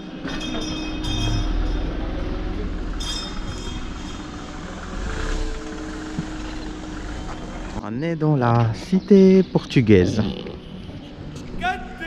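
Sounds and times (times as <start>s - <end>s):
traffic: 0.0s - 12.0s
low rumble: 0.7s - 7.8s.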